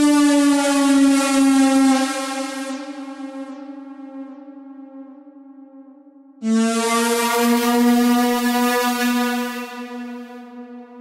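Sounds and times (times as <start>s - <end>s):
sawtooth synth lead notes: 6.4s - 11.0s.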